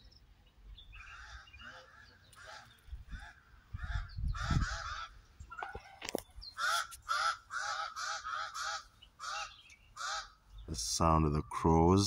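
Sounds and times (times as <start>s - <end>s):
crows cawing: 1.0s - 5.2s, 6.6s - 10.5s.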